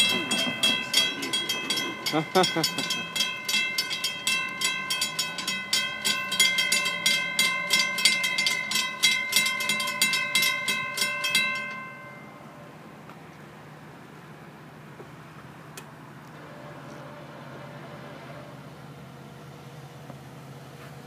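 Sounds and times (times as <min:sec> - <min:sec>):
crossing bell ringing: 0:00.0 - 0:12.8.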